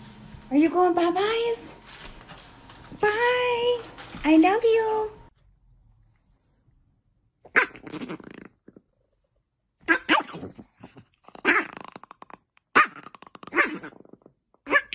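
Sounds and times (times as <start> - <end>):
dog growling and barking: 7.5 - 8.8, 9.8 - 14.9.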